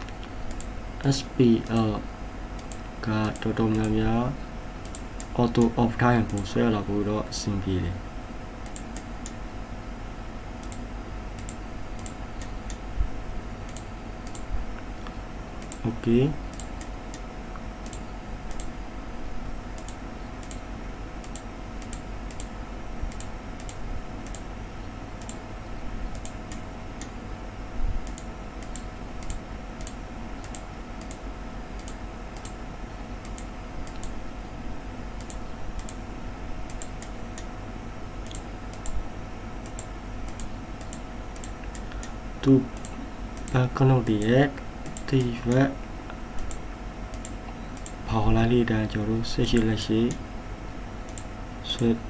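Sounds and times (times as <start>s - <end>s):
computer mouse clicking: 0.0s - 0.8s, 2.6s - 4.0s, 4.8s - 6.5s, 8.6s - 9.4s, 10.6s - 10.8s, 11.4s - 12.8s, 13.7s - 15.9s, 16.5s - 18.8s, 19.7s - 22.5s, 23.1s - 24.5s, 25.2s - 25.4s, 26.1s - 27.2s, 28.0s - 31.2s, 31.8s - 32.6s, 33.2s - 34.2s, 35.2s - 36.0s, 36.6s - 37.5s, 38.2s - 39.0s, 39.6s - 42.2s, 42.8s - 48.0s, 51.1s - 51.3s
faint electrical hum: 0.0s - 52.0s.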